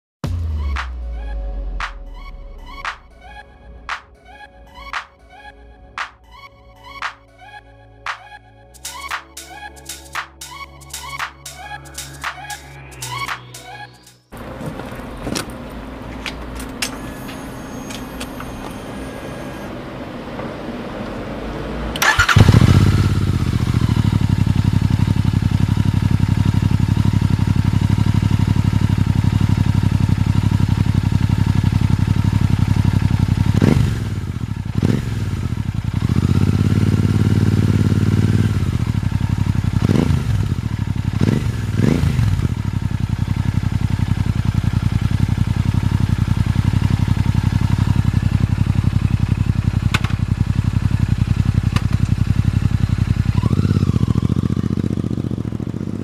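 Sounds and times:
motorcycle engine idling and revving: 8.0 - 56.0.

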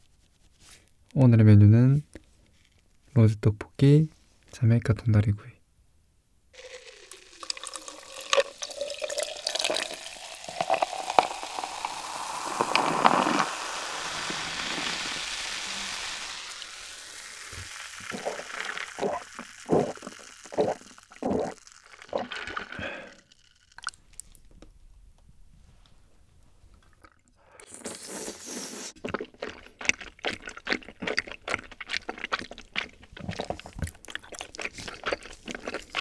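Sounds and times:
carbonated fizzing: 6.6 - 24.4
cola pouring into a glass: 6.6 - 24.4, 29.0 - 36.0.

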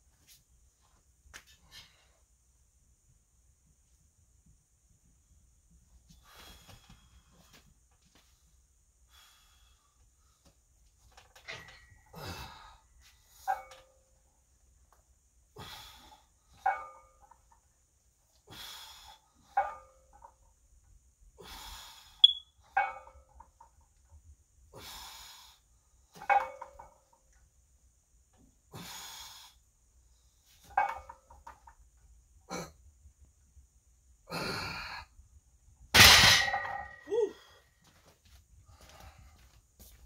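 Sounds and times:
hard breaths: 6.1 - 10.6, 15.5 - 16.6, 18.4 - 19.6, 21.3 - 22.2, 24.7 - 26.1, 28.7 - 30.6, 37.2 - 40.0
barbell plates clinking: 26.2 - 27.0, 30.7 - 31.7, 36.0 - 37.1
barbell clanging onto rack: 36.0 - 37.0.

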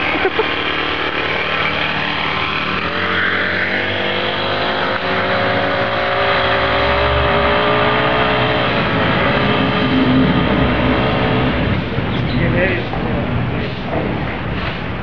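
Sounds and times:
small engine revving: 0.0 - 12.9.

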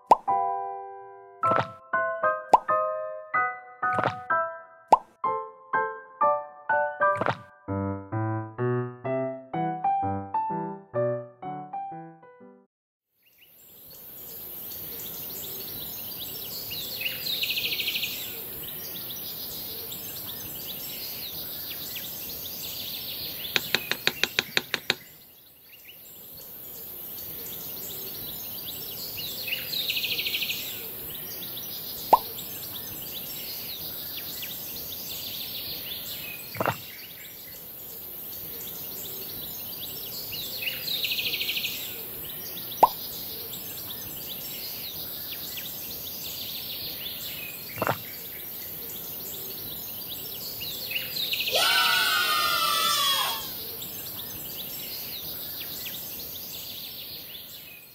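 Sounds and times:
sharp pops: 0.0 - 0.4, 1.4 - 1.8, 2.5 - 2.8, 3.9 - 4.3, 4.9 - 5.2, 7.1 - 7.5, 23.6 - 25.1, 36.5 - 36.9, 42.8 - 43.0, 47.8 - 48.1
quick taps: 1.4 - 1.8, 3.9 - 4.3, 7.1 - 7.5, 23.6 - 25.1
low thump: 1.5 - 1.8, 3.9 - 4.3, 7.2 - 7.5
birds chirping: 13.3 - 57.9.

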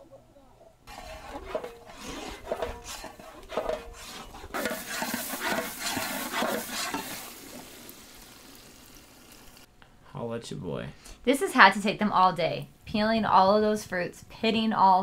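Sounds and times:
ladle scraping a metal pan: 0.9 - 7.7
oil sizzling: 0.9 - 9.7.

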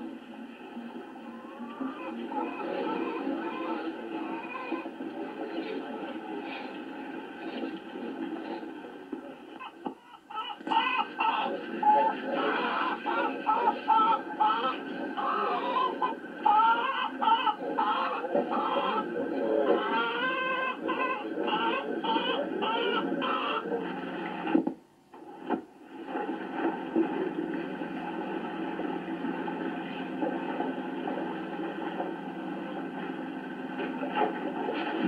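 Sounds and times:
hens clucking: 9.8 - 23.9.

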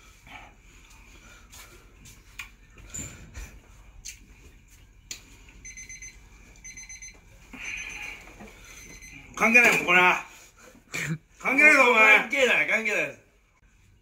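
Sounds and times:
kitchen timer beeping: 5.6 - 8.1, 8.7 - 9.3.

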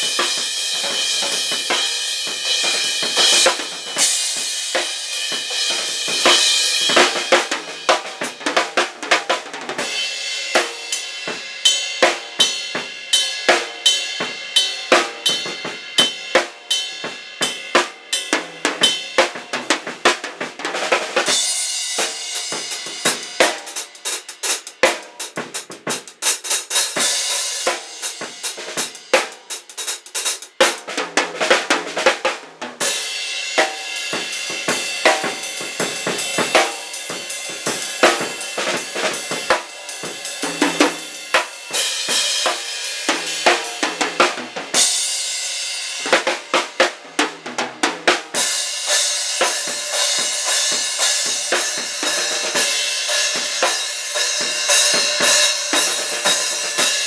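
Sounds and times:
cymbals washing: 0.0 - 8.4, 48.4 - 57.0
drum kit played with sticks: 0.0 - 57.0.

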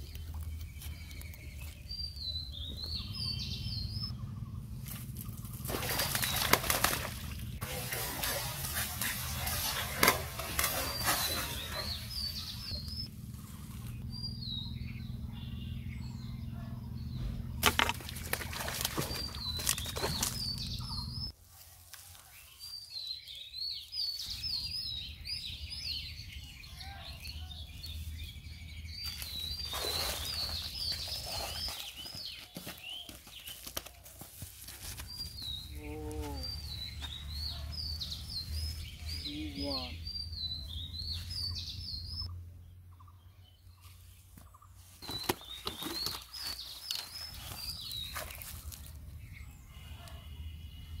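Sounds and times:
songbird singing: 0.0 - 21.4, 22.0 - 51.0
low hum: 0.1 - 21.3
fish splashing water: 5.6 - 11.8, 17.6 - 20.5, 29.6 - 30.7.

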